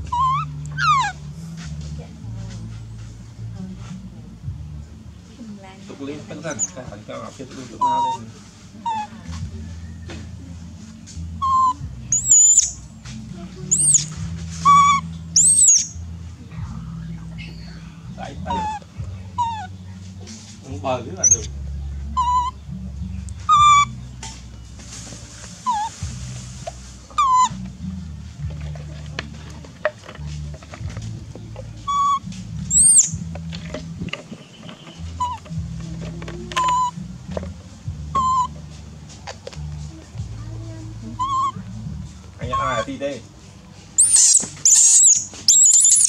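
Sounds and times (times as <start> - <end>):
baby monkey crying: 0.0 - 1.2, 7.8 - 8.2, 8.8 - 9.2, 11.4 - 12.8, 13.7 - 15.9, 18.4 - 18.8, 19.4 - 19.7, 22.2 - 22.6, 23.5 - 24.0, 25.6 - 25.9, 27.1 - 27.6, 31.9 - 33.2, 35.2 - 35.4, 38.1 - 38.6, 41.2 - 41.6, 44.0 - 46.0.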